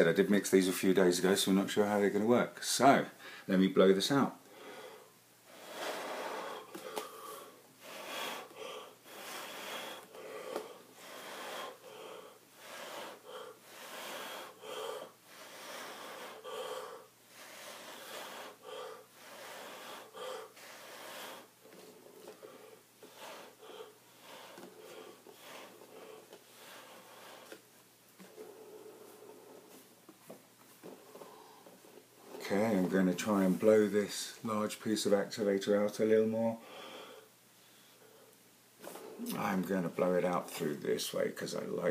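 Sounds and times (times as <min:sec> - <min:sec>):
person blowing short puffs: 0:05.5 - 0:27.6.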